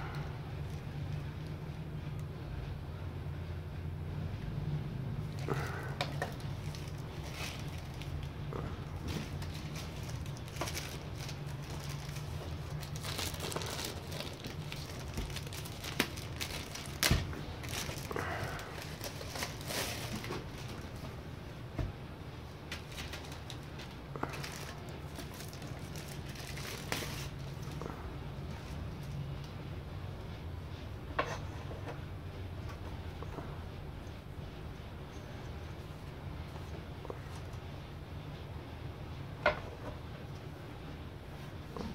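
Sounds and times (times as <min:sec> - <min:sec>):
steady low hum: 0:00.0 - 0:41.9
plastic bag crinkling: 0:05.4 - 0:21.0, 0:22.8 - 0:27.8.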